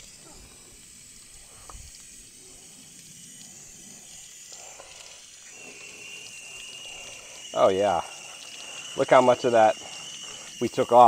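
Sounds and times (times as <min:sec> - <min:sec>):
hose nozzle spraying water: 0:00.0 - 0:11.0
water splashing on pavement: 0:01.4 - 0:11.0.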